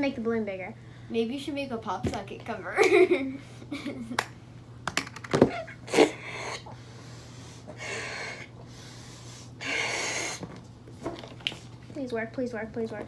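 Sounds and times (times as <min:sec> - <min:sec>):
breathy blows into a balloon: 0:05.9 - 0:10.4.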